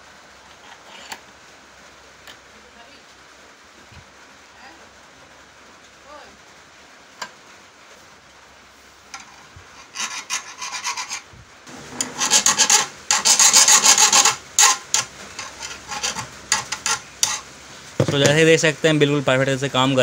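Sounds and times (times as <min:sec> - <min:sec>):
hand file scraping metal: 0:00.6 - 0:01.2, 0:09.1 - 0:17.5.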